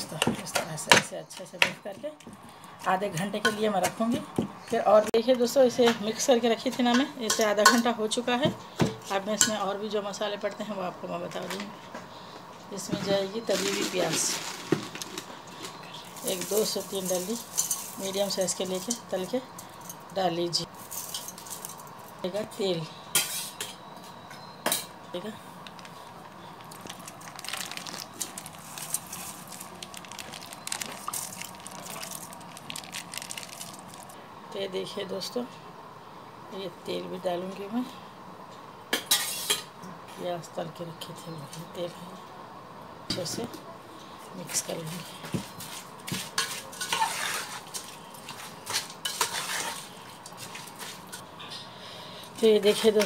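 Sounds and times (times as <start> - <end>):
metal spoon stirring in metal pot: 16.0 - 20.1, 20.9 - 22.0, 46.1 - 51.3
yogurt squelching into a pot: 25.6 - 34.2.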